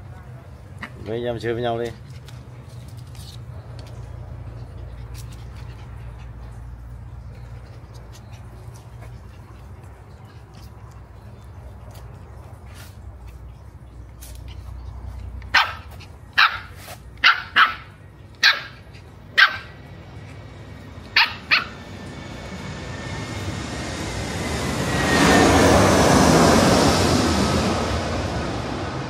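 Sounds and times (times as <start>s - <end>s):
puppy yapping: 15.5s - 19.8s, 21.1s - 21.9s
rush of noise: 20.2s - 29.0s.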